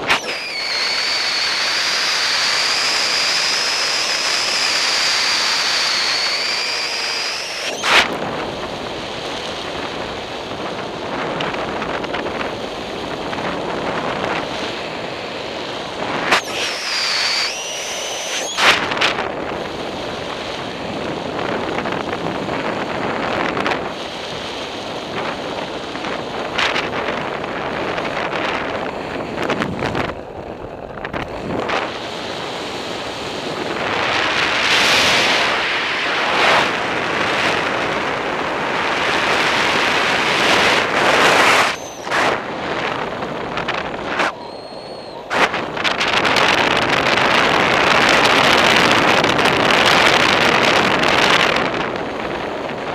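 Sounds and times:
wind rushing over microphone: 0.0 - 52.9
high whistle: 0.1 - 8.1, 16.3 - 18.8, 41.3 - 42.3, 44.2 - 45.5.

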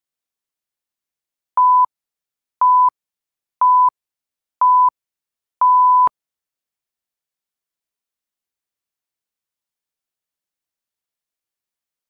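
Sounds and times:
electronic timer beeps: 1.6 - 1.9, 2.6 - 2.9, 3.6 - 3.9, 4.6 - 4.9, 5.6 - 6.1.

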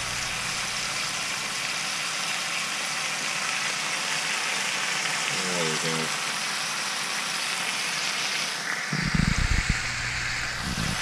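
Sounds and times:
steak sizzling in butter: 6.2 - 11.0.

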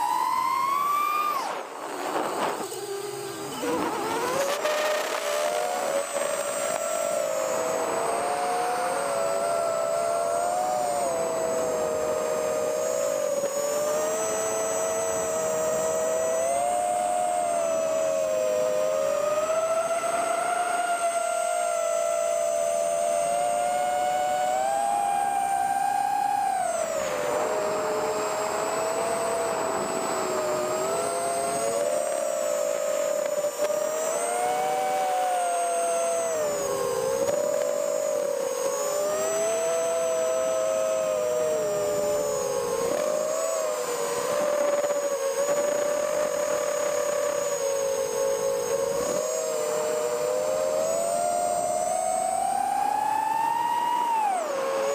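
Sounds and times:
rush of air noise: 0.0 - 8.1
drone motors whining: 0.0 - 54.9.

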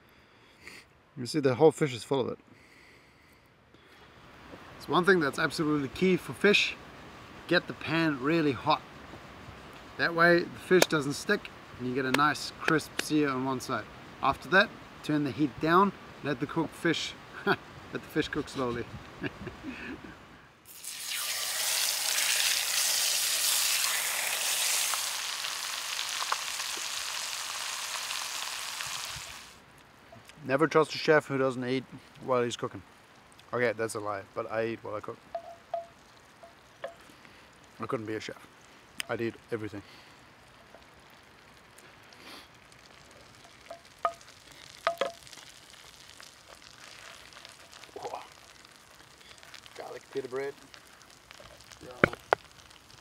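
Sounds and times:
fish sizzling in a skillet: 20.7 - 29.6, 40.0 - 53.0
small pops: 41.6 - 53.0.

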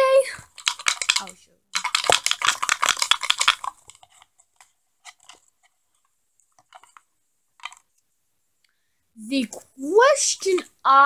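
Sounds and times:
laptop keyboard typing: 0.4 - 4.3.

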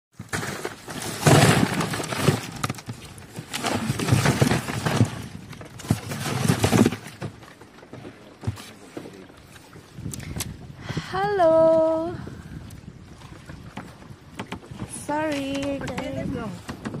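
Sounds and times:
fish flapping in plastic tub: 0.2 - 7.3.

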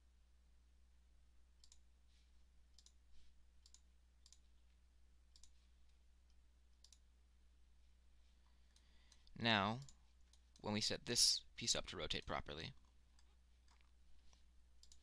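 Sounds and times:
computer mouse clicks: 1.6 - 1.9, 2.7 - 3.0, 3.6 - 4.5, 5.3 - 7.1, 8.7 - 10.7, 12.1 - 15.0.

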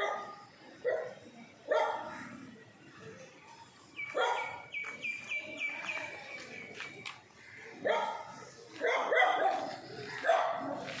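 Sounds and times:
dog barking: 0.0 - 2.1, 4.1 - 4.6, 7.8 - 11.0.

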